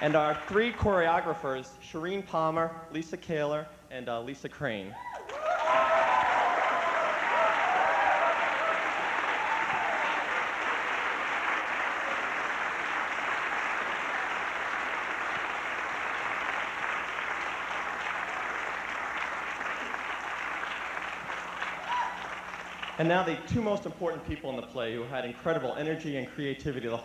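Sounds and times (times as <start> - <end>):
audience applauding: 0.0 - 0.7, 5.1 - 23.1.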